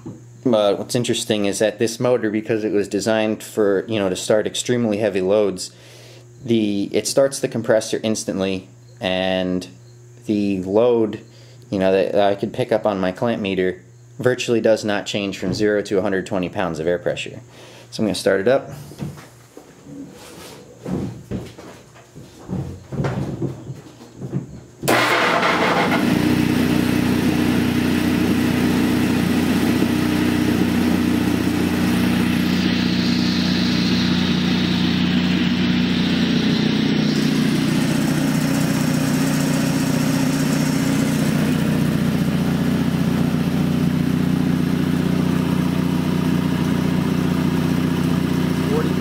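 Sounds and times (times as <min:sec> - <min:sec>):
air compressor running: 0:24.8 - 0:49.0.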